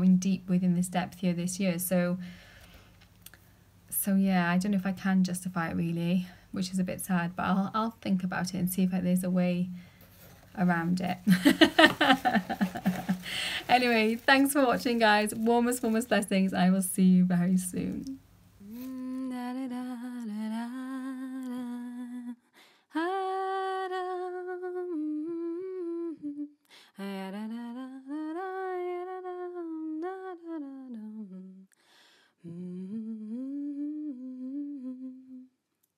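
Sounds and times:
woman humming: 17.4 - 22.3, 32.4 - 35.5.

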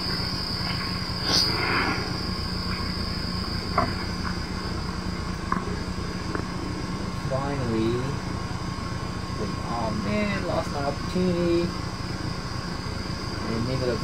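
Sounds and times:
low hum: 0.0 - 14.0
night insects trilling: 0.0 - 14.0.

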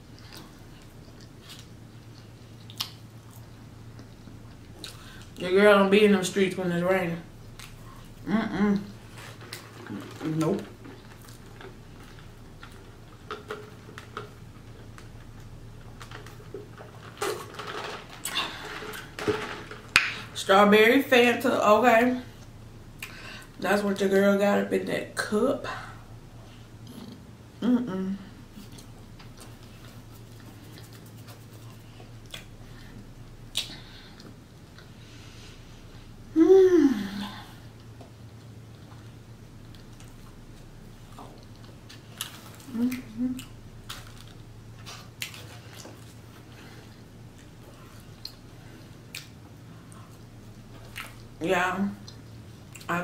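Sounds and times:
steady low hum: 0.0 - 53.0
wet chewing smacks: 0.1 - 5.2, 47.3 - 51.3.

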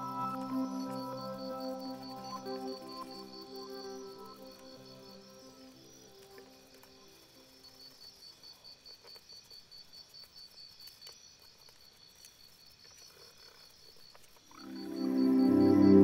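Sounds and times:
music note: 0.0 - 5.8, 14.6 - 16.0
faint high-pitched chirping pulse: 0.0 - 11.4, 13.6 - 16.0.

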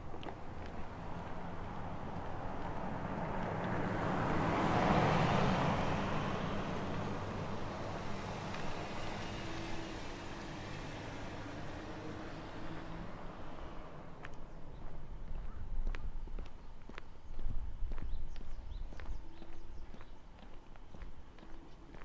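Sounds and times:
car driving past: 0.3 - 15.1.

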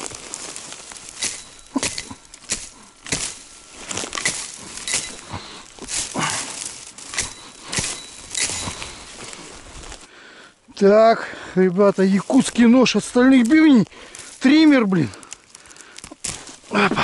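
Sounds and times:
axe chopping brush: 0.0 - 9.4.

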